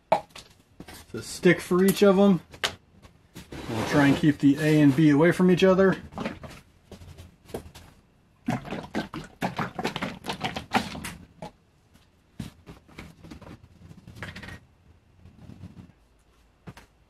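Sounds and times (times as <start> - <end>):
liquid glugging: 8.4 - 11.5.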